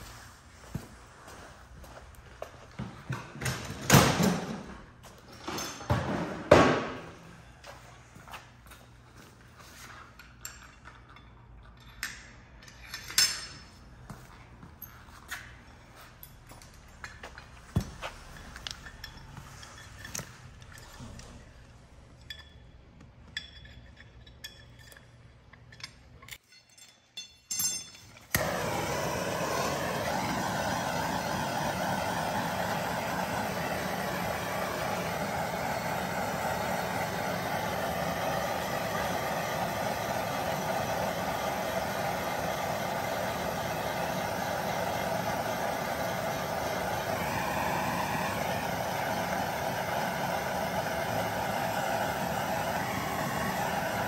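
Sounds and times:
metal tools clinking: 10.2s - 13.8s, 18.2s - 21.2s, 22.1s - 28.3s
gas torch flame hissing: 28.3s - 54.0s.

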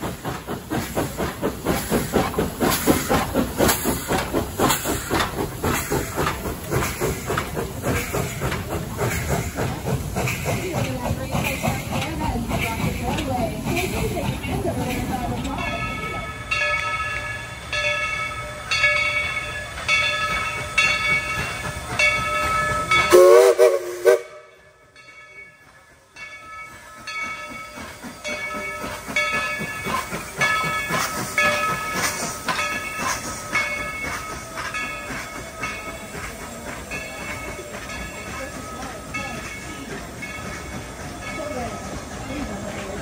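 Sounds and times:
locomotive bell ringing: 0.4s - 43.0s
wavering steam whistle: 22.5s - 24.6s.

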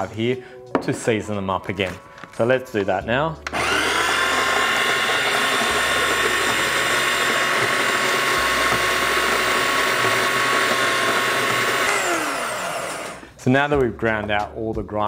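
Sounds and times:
coffee grinder motor whine: 3.5s - 13.2s.

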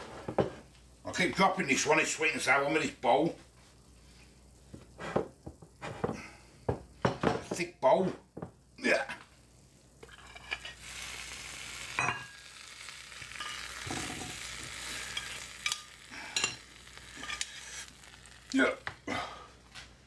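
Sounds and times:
sizzling hiss: 0.0s - 19.6s
metal spoon scraping a dish: 17.2s - 17.9s.

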